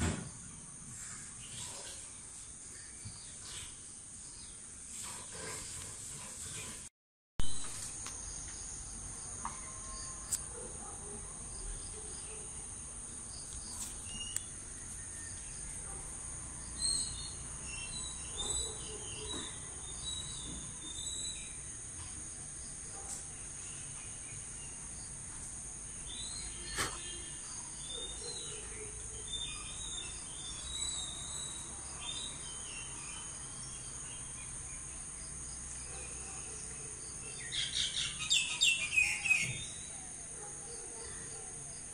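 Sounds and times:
insects droning: 0:07.5 - 0:41.9
birds chirping: 0:11.7 - 0:21.7.

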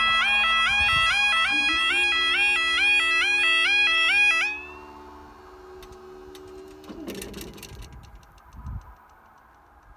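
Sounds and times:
crossing barrier alarm: 0:00.0 - 0:07.2
barrier mechanism humming: 0:03.7 - 0:08.5.

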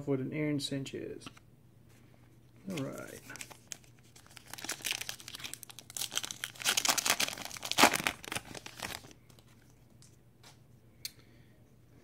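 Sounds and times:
card pack wrapper tearing and crinkling: 0:02.7 - 0:09.6.

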